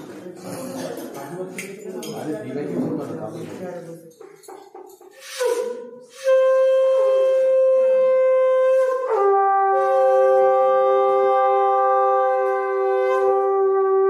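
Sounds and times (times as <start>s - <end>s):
conch shells blown: 5.1s - 14.0s.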